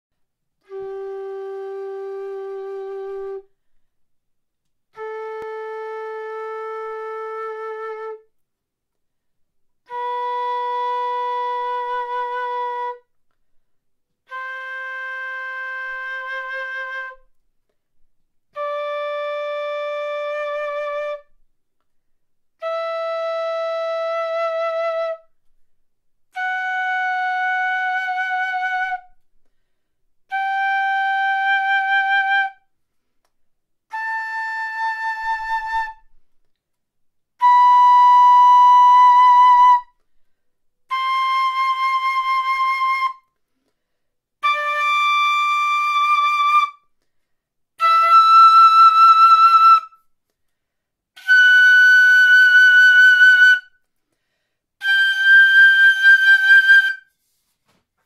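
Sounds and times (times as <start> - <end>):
flute playing a slow scale: 0.6 - 3.7, 4.9 - 8.3, 9.8 - 13.2, 14.2 - 17.4, 18.5 - 21.4, 22.6 - 25.4, 26.3 - 29.2, 30.3 - 32.7, 33.9 - 36.2, 37.4 - 40.0, 40.9 - 43.4, 44.4 - 47.0, 47.8 - 50.0, 51.2 - 53.9, 54.8 - 57.2.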